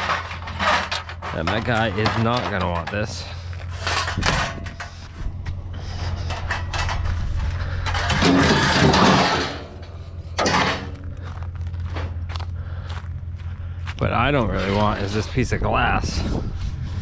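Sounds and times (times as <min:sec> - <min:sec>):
junk knocks and clicks: 0:00.0 - 0:12.5
scraping clatter: 0:00.0 - 0:12.5, 0:14.0 - 0:17.0
low hum: 0:00.0 - 0:17.0.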